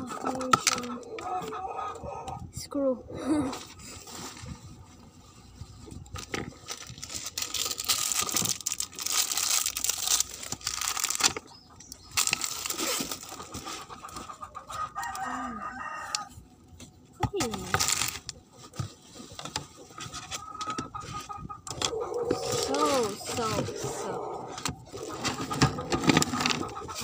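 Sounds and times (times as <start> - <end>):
chicken clucking: 0.0 - 2.5, 12.7 - 16.3, 19.6 - 27.0
plastic bag of screws crinkling: 6.4 - 11.5, 12.2 - 13.4, 17.7 - 18.3.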